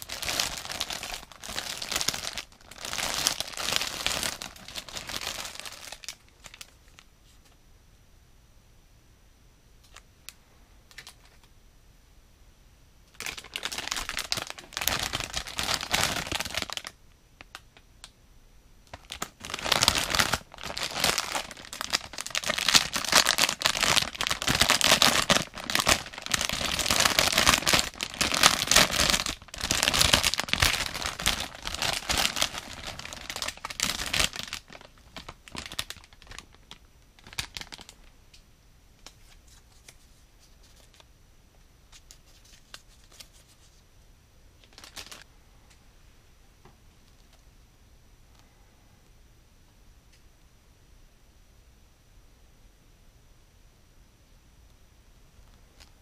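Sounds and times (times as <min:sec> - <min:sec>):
plastic bag crinkling: 0:00.0 - 0:07.1, 0:13.1 - 0:17.6, 0:18.9 - 0:38.1, 0:44.6 - 0:45.3.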